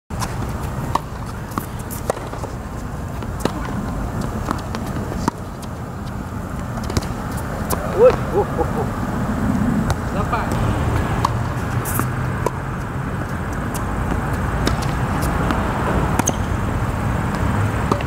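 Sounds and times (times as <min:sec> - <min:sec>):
tennis ball struck and bouncing: 0:00.2 - 0:05.8, 0:06.8 - 0:08.8, 0:14.1 - 0:16.5, 0:17.3 - 0:18.0
person speaking: 0:07.8 - 0:08.9.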